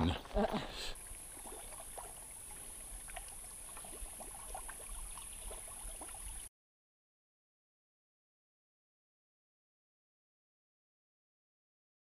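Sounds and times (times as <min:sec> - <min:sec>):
creek gurgling over rocks: 0:00.0 - 0:06.5
steady high-pitched hiss: 0:00.1 - 0:06.4.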